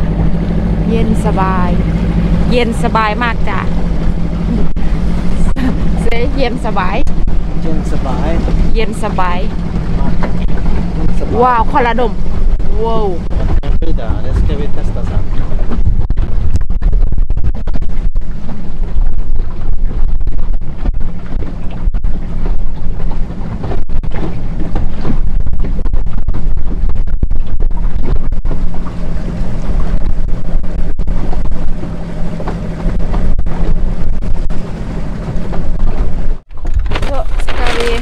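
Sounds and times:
motorboat engine drone: 0.0 - 38.0
water rushing past hull: 0.0 - 38.0
wind buffeting microphone: 0.0 - 38.0.

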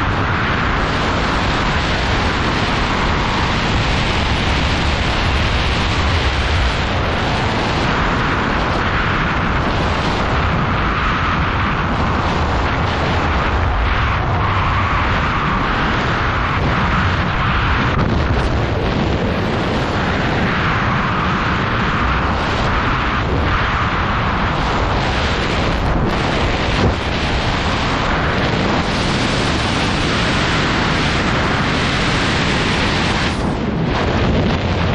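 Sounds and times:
wind rushing over microphone: 0.0 - 34.9.

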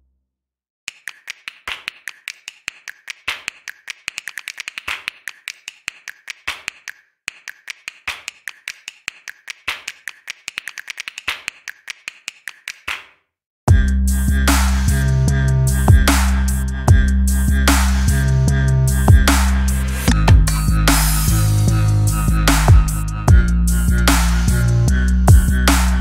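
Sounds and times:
rapid irregular clicks and taps: 0.9 - 13.2.

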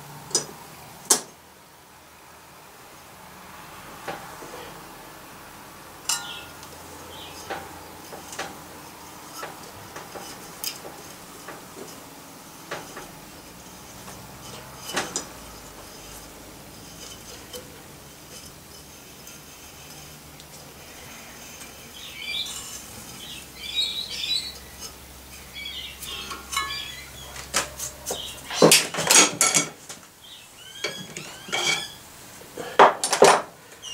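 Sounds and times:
metal hand tools clinking: 6.1 - 6.6, 26.0 - 29.8.

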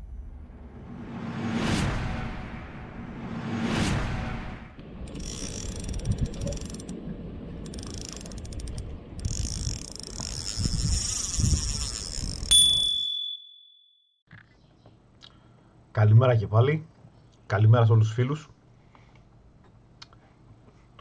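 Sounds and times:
low rumble: 0.0 - 11.6
rapid ratchet-like clicking: 5.1 - 6.9, 7.7 - 12.5.

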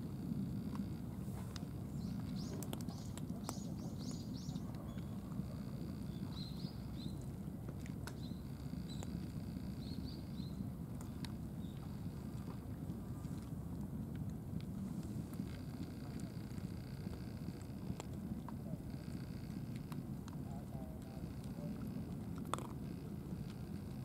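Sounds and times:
low background rumble: 0.0 - 24.0
cats crunching dry kibble: 1.4 - 5.8, 10.9 - 24.0
small birds chirping: 1.9 - 5.2, 5.9 - 7.2, 8.1 - 10.6.

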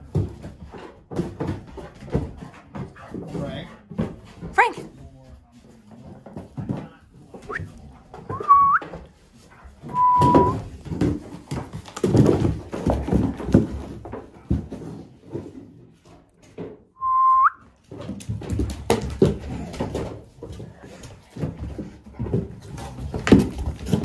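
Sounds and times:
high whistle-like tones: 8.3 - 8.9, 9.9 - 10.6, 17.0 - 17.6
cardboard box knocking and scraping: 9.9 - 15.8, 17.9 - 24.0.

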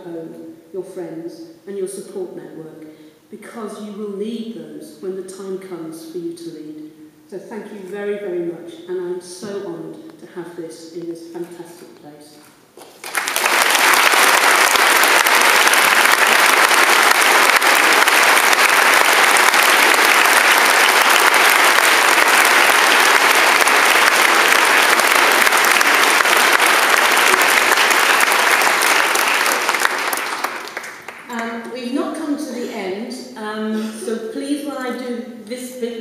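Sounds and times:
audience applauding: 12.8 - 31.3.

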